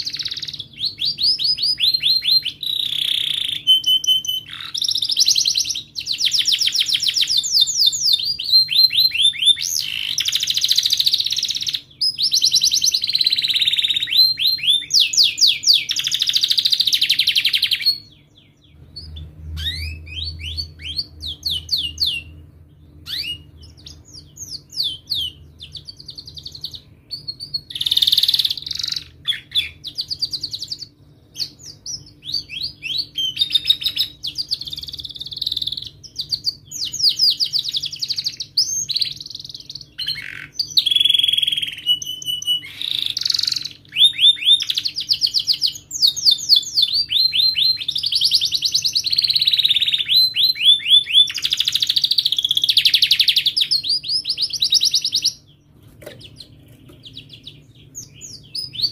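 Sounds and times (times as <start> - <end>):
canary singing trills and chirps: 0.0 - 58.9.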